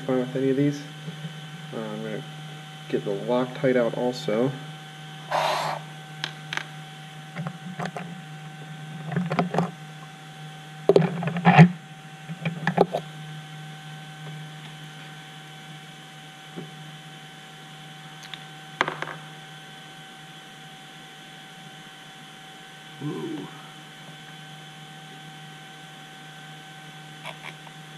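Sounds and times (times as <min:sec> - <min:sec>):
steady hum: 0:00.0 - 0:27.9.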